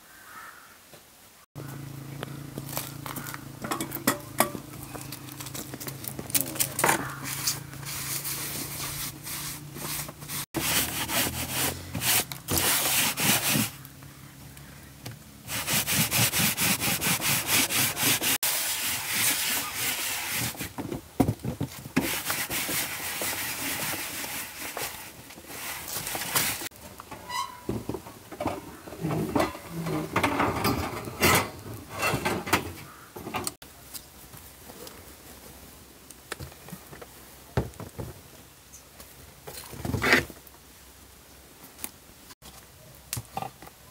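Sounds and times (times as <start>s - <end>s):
cloth rubbing squash skin: 6.3s - 13.8s, 15.5s - 20.8s.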